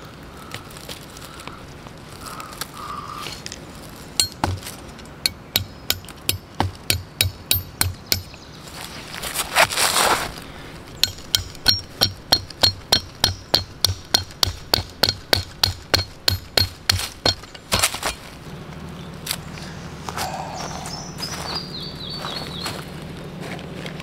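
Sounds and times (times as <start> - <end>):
blade tapping metal peg: 11.0 - 17.6.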